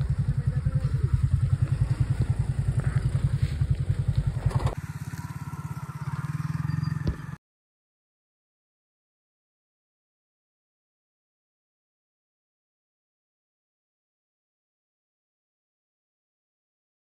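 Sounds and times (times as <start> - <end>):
scooter engine throbbing: 0.0 - 7.4.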